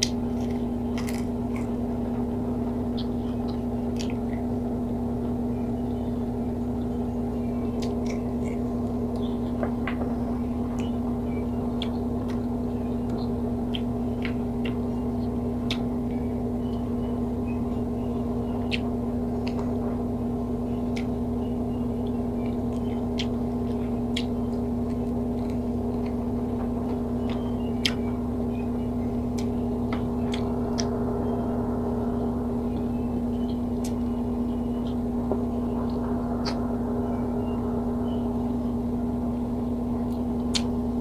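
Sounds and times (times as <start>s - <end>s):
fingers picking at food: 0.0s - 4.7s, 7.4s - 16.8s, 17.5s - 19.8s, 20.7s - 31.4s, 40.0s - 40.9s
close chewing clicks: 0.0s - 38.7s, 40.0s - 41.0s
electric hum with low drone: 0.0s - 41.0s.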